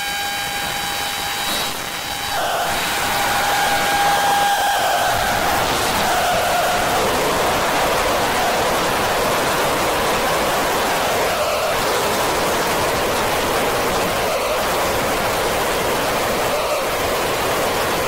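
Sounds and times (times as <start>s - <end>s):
synthesized noise drone: 0.0s - 18.0s.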